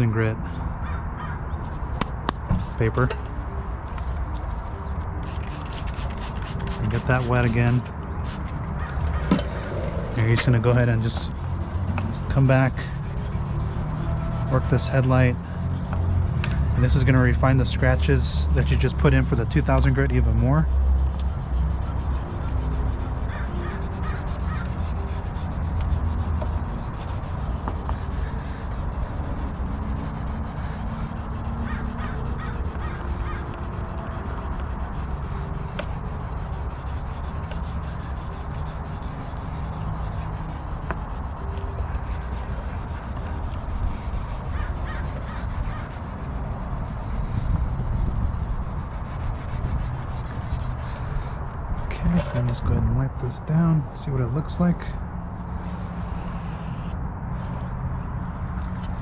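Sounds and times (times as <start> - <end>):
birds calling: 0.0 - 2.0, 7.1 - 12.6, 23.2 - 25.0, 31.6 - 33.6, 44.4 - 46.1
sandpaper scrubbing plastic: 4.4 - 9.3, 10.1 - 51.0, 58.5 - 59.0.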